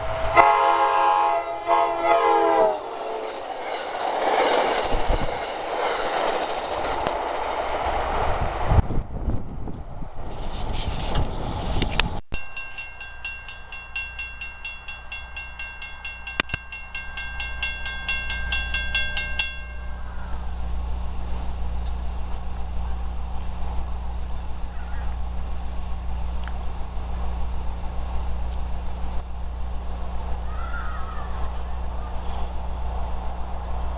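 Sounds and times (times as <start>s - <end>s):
crossing warning bell ringing: 0.0s - 4.9s, 12.3s - 30.7s
diesel train rumble: 0.0s - 33.9s.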